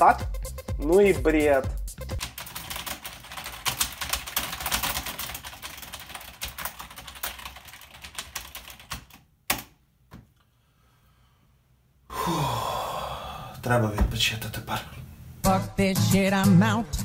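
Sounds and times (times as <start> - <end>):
fast typing on keyboard: 2.2 - 9.7.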